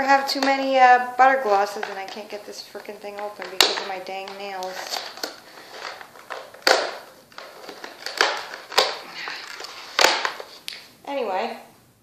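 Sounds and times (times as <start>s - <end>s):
packaging crackling and clicking: 1.7s - 10.8s
packaging cracking loudly: 3.1s - 10.6s.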